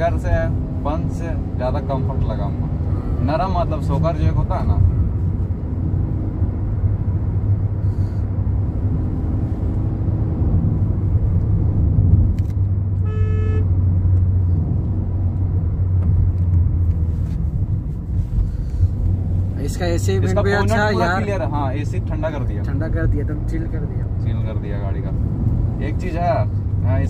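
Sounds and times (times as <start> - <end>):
car engine and road drone: 0.0 - 27.0
vehicle horn: 13.0 - 13.7.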